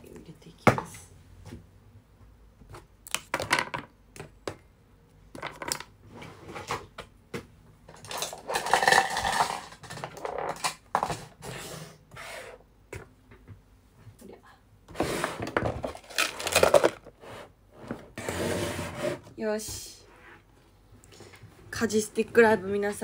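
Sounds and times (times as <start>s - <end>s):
rummaging through objects: 7.9s - 11.5s, 14.9s - 18.4s
small hard objects clinking: 8.0s - 10.8s.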